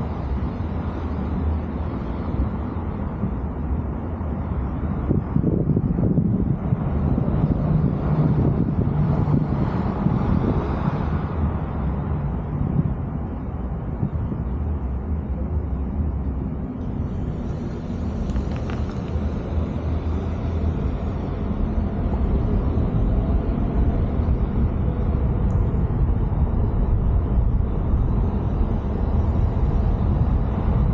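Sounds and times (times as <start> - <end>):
car engine and road noise: 0.0 - 30.9.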